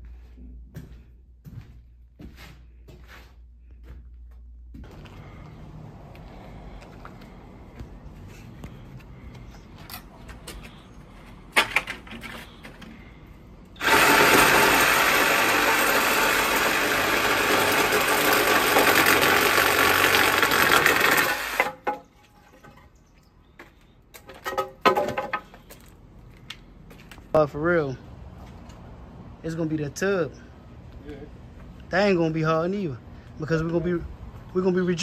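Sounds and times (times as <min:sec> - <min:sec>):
reciprocating saw cutting wood: 0:13.8 - 0:21.9.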